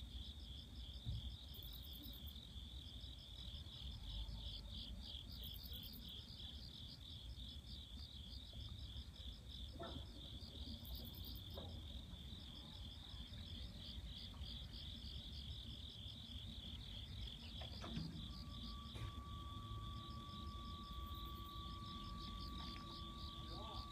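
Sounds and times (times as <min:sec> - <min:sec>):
insects chirping at night: 0:00.0 - 0:23.9.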